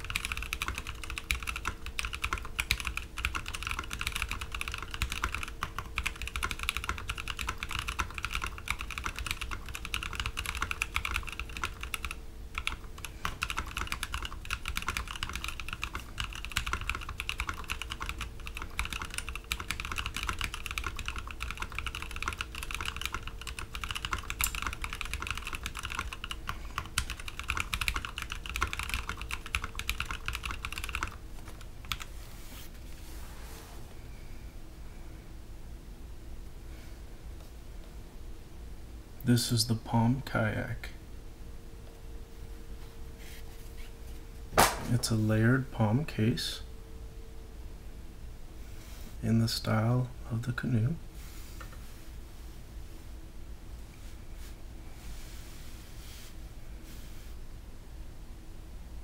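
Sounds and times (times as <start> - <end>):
mechanical keyboard typing: 0.0 - 32.1.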